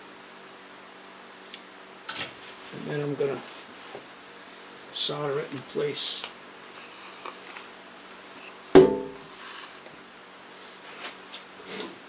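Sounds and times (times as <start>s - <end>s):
faint steady hum: 0.0s - 12.0s
sharp ringing knock: 8.8s - 9.2s.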